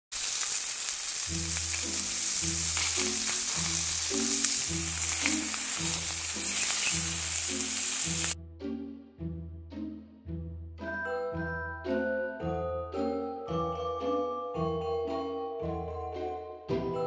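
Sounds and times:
crackles: 0.1 - 8.4
food sizzling in a hot pan: 0.1 - 8.4.

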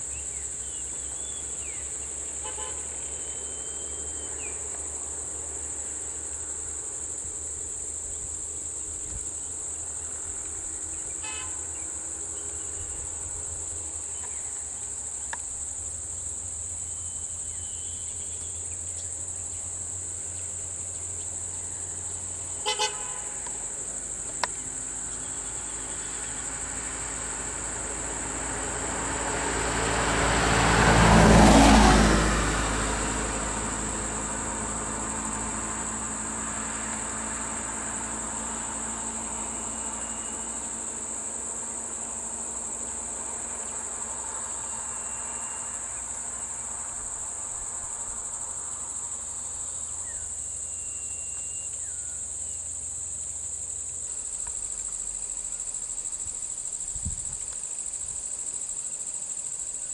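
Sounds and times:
insects droning: 0.0 - 59.9
vehicle horn toots: 2.4 - 4.1, 11.2 - 11.7, 22.6 - 23.6
vehicle driving past: 24.6 - 50.6.

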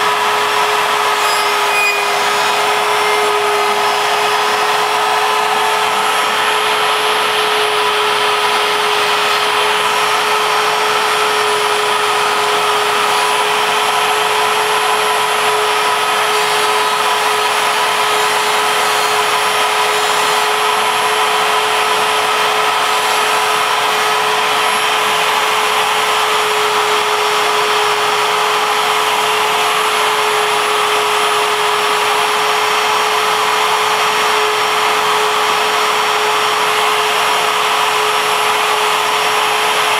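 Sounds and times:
vacuum hose rushing: 0.0 - 28.4
router spindle whining: 0.0 - 39.9.

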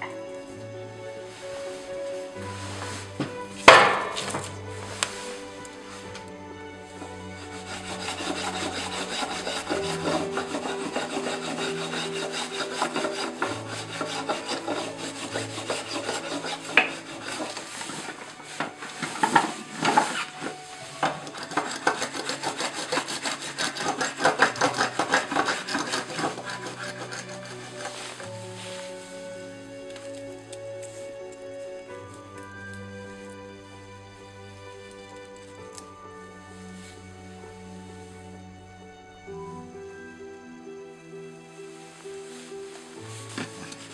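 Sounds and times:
quiet background music: 0.0 - 43.9
rasp scraping wood: 2.8 - 29.2, 43.2 - 43.9.

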